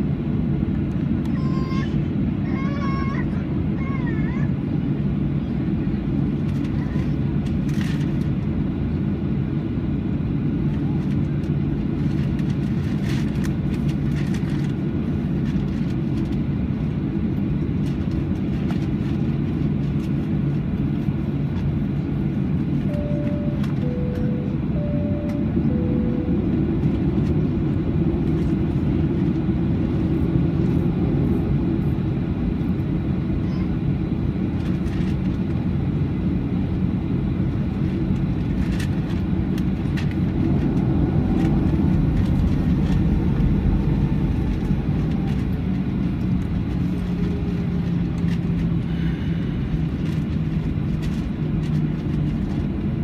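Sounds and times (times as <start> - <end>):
airplane cabin hum: 0.0 - 53.0
alternating high and low tones: 22.9 - 27.9.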